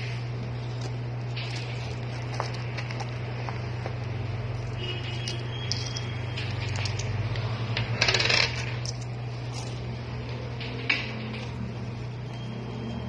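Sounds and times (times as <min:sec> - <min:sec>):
steady low hum: 0:00.0 - 0:13.0
coins clinking: 0:04.5 - 0:07.3, 0:08.0 - 0:09.9.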